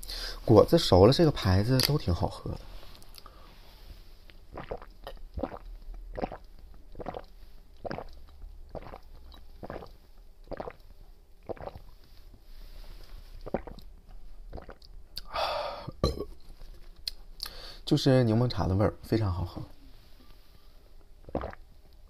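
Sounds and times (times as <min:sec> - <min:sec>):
person gulping a drink: 0:04.3 - 0:12.0, 0:13.4 - 0:16.4, 0:21.2 - 0:21.7.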